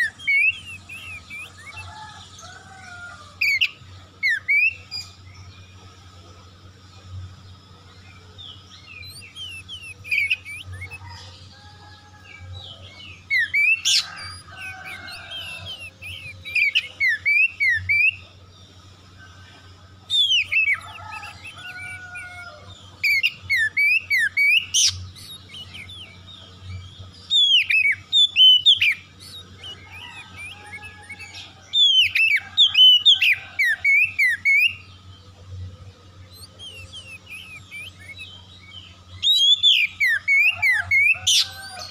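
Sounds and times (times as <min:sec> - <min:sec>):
bird singing whistled phrases: 0:00.0 - 0:02.1, 0:09.0 - 0:11.2, 0:36.3 - 0:41.8.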